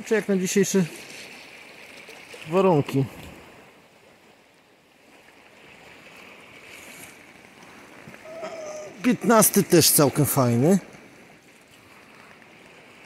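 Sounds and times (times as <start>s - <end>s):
distant surf: 0.0s - 13.0s
soft rustle: 6.2s - 8.9s.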